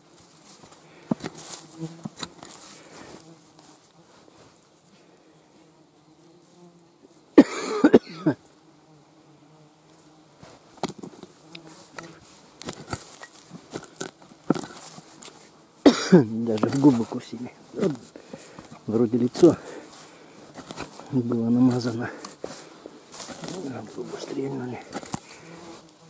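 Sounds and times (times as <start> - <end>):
fly buzzing: 0.0 - 26.0
digging tool scraping stony soil: 0.3 - 4.5, 10.4 - 15.6, 16.3 - 26.0
soil and stones clattering: 0.4 - 2.8, 10.8 - 25.8.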